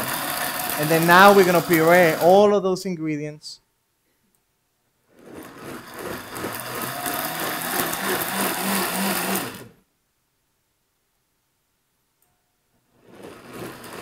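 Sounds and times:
blender motor whirring: 0.0 - 2.5, 5.1 - 9.8, 13.0 - 14.0.

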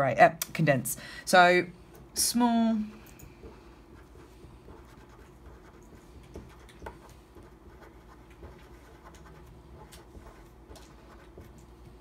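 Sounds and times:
pen scratching on paper: 3.9 - 11.6.

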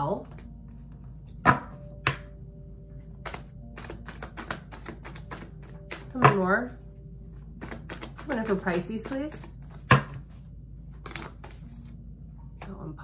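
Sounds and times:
cards shuffling with quick clicks: 3.2 - 6.3, 7.6 - 10.2, 10.9 - 11.9.

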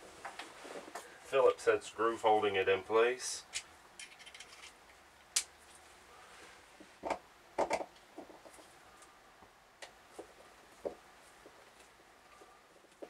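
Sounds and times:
hand tools and plastic knocking: 6.8 - 8.7.

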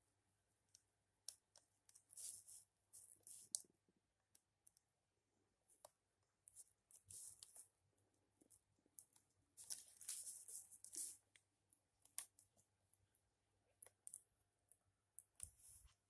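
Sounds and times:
light rustling and crinkling: 8.4 - 11.4.

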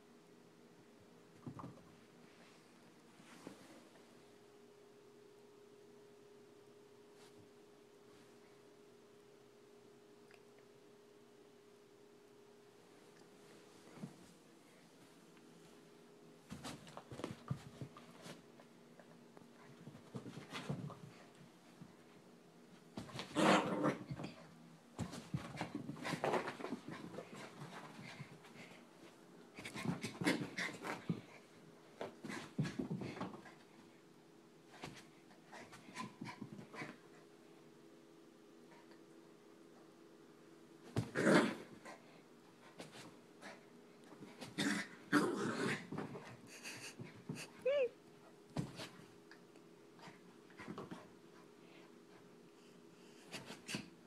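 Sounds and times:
dog whimpering: 47.6 - 48.0.

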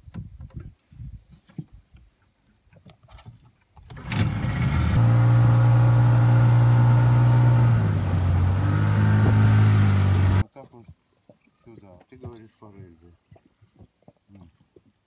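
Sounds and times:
outboard motor running: 4.0 - 10.4
water and wind noise: 7.8 - 11.0.

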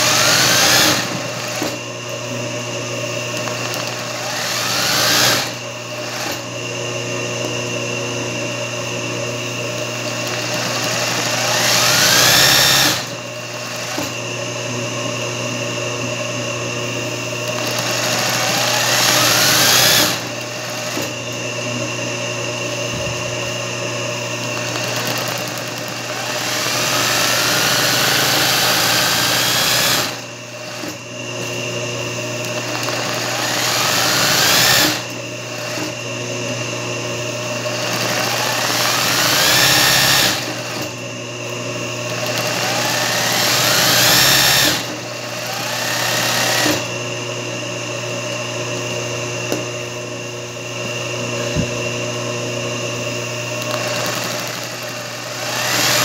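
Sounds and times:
sewing machine motor whine: 0.0 - 56.0
sewing machine needle running: 3.3 - 6.4, 9.8 - 14.1, 17.4 - 21.1, 24.4 - 31.0, 32.4 - 35.9, 37.6 - 40.9, 42.1 - 46.9, 53.6 - 56.0.

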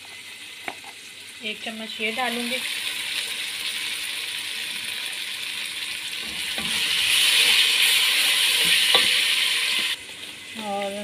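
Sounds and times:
masala sizzling in oil: 0.0 - 11.0
spatula stirring in pan: 6.2 - 10.0.

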